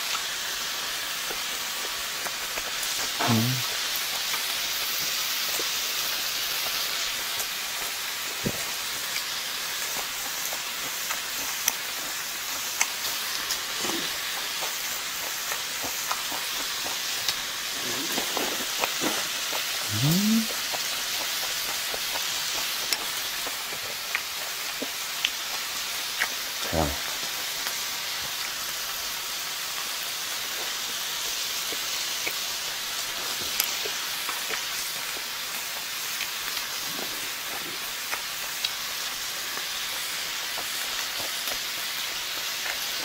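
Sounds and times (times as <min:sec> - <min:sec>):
meat sizzling on a griddle: 0:00.0 - 0:43.0.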